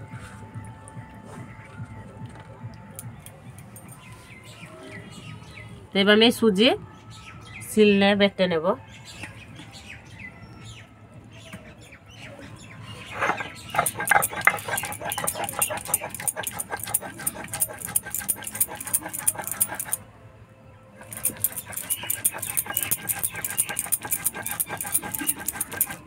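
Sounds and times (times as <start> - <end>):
stone pestle grinding on stone: 13.0 - 20.0, 21.0 - 26.0.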